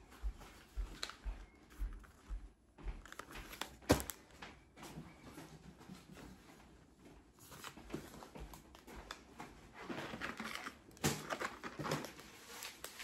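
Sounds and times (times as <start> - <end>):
packaging rustling: 7.4 - 13.0.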